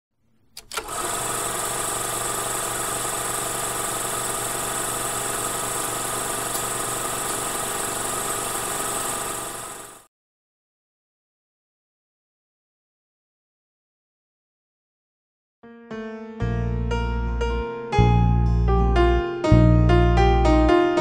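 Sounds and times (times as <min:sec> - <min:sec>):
quick clicks: 0:00.5 - 0:01.1
mechanical whirring hum: 0:00.5 - 0:10.0.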